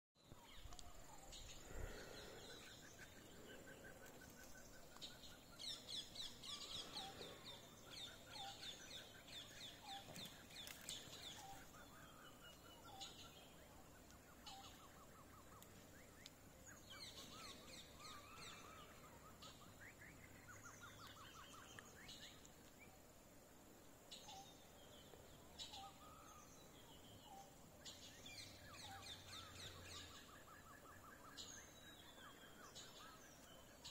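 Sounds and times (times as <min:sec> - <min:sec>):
faint wild birds calling: 0:00.2 - 0:33.9.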